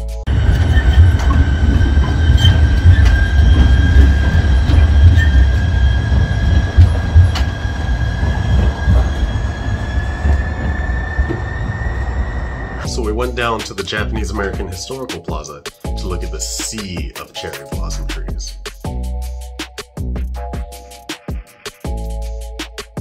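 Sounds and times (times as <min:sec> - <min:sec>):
low train rumble: 0:00.0 - 0:14.8
train wheels squealing: 0:00.3 - 0:13.0.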